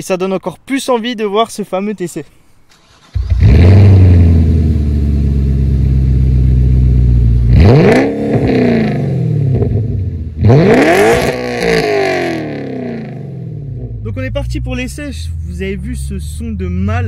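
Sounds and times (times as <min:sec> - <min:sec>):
car engine idling: 0:02.8 - 0:10.6, 0:11.4 - 0:17.0
engine revving: 0:02.8 - 0:17.0.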